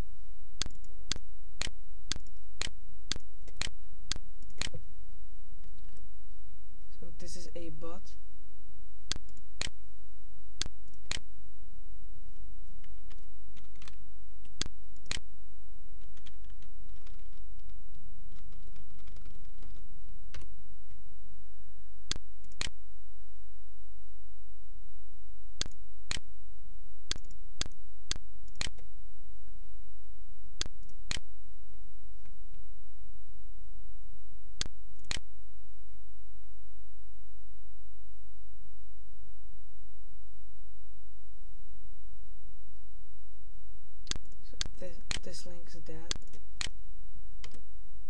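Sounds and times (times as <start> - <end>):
steady low hum: 0.0 - 48.0
computer mouse and keyboard clicks: 12.8 - 15.2, 16.0 - 20.5, 27.1 - 27.8.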